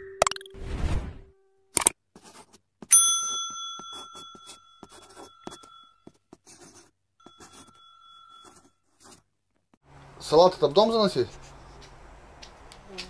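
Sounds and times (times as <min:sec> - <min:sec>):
bright metallic ring: 0:02.9 - 0:06.0, 0:07.3 - 0:08.7.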